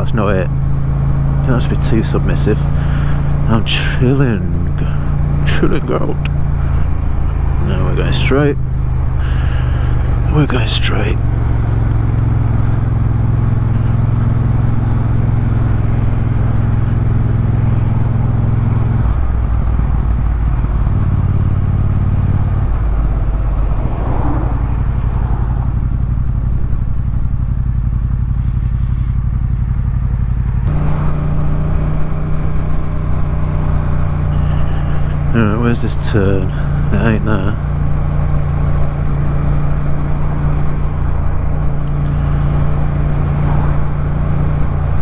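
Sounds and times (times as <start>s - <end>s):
motorcycle engine running: 0.0s - 45.0s.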